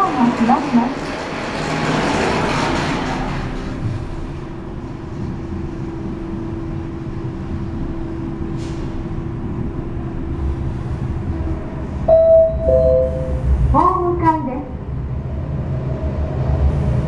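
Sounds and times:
elevator hum and rumble: 0:00.0 - 0:17.0
two-tone arrival chime: 0:12.1 - 0:13.3.

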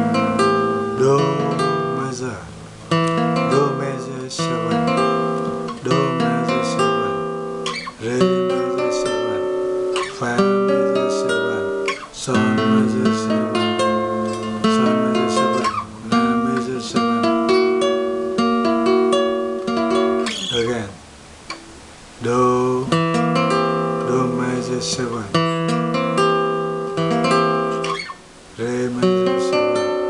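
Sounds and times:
fingerpicked nylon-string guitar: 0:00.0 - 0:30.0.

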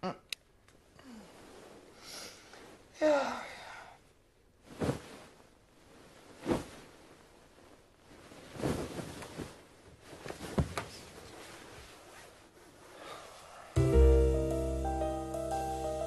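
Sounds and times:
bedding rustling: 0:04.5 - 0:13.7.

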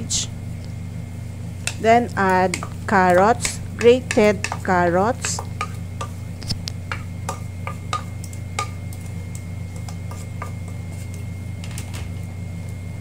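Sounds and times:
steady low hum: 0:00.0 - 0:13.0
spatula scraping plastic bowl: 0:09.7 - 0:11.2.

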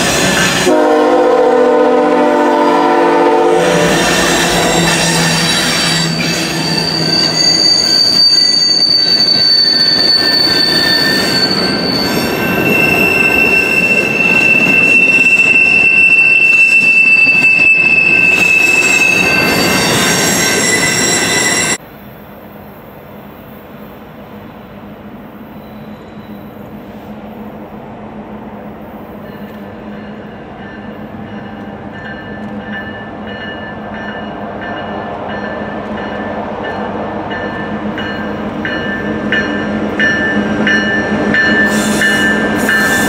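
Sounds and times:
rumble of train wheels: 0:00.0 - 0:43.0
train wheels squealing: 0:03.7 - 0:21.8, 0:25.2 - 0:27.1, 0:29.0 - 0:43.0.

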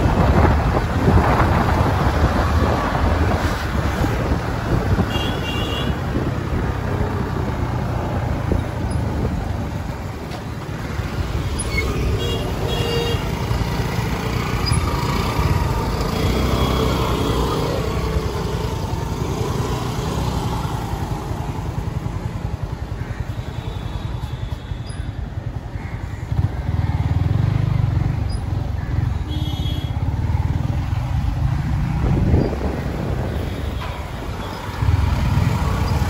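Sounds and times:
wind noise: 0:00.0 - 0:07.1, 0:31.3 - 0:34.9
vehicle engine rumble: 0:00.0 - 0:36.0.

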